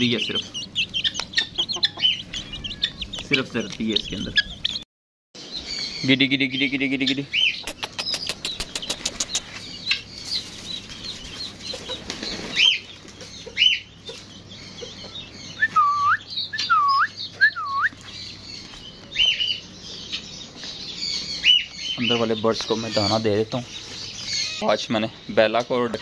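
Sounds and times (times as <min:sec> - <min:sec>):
birds chirping: 0:00.0 - 0:26.0
wings flapping: 0:07.8 - 0:09.6, 0:11.7 - 0:13.2
swooping whistled bird calls: 0:14.6 - 0:18.2.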